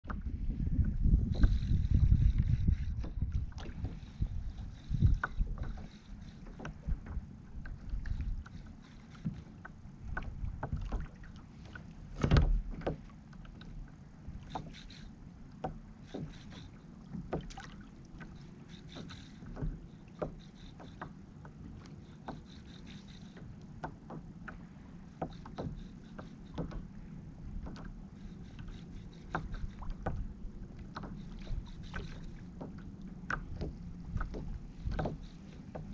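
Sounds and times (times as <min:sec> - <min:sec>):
small waves slapping a kayak hull: 0:00.1 - 0:35.9
short knocks and clicks: 0:09.2 - 0:13.8, 0:18.2 - 0:28.0, 0:28.6 - 0:35.9.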